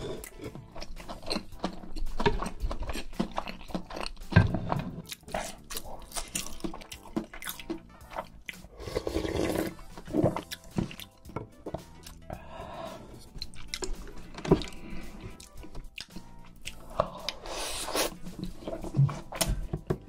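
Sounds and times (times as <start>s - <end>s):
chewing with mouth clicks: 0.0s - 12.4s, 13.0s - 18.9s
slurping broth: 0.0s - 19.3s.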